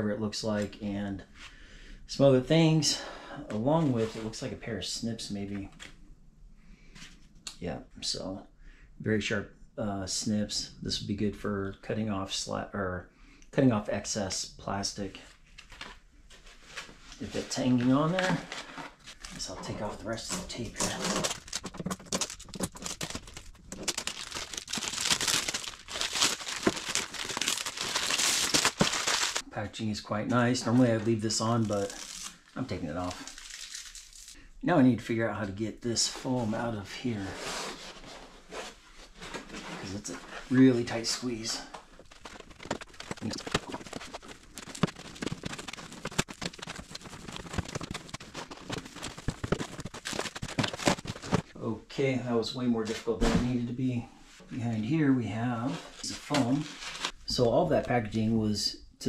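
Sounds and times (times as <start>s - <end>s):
plastic film peeling and crinkling: 17.5s - 29.4s, 30.7s - 34.4s, 40.7s - 51.5s, 56.0s - 57.2s
handling knocks and bumps: 19.4s - 29.4s, 41.8s - 51.5s.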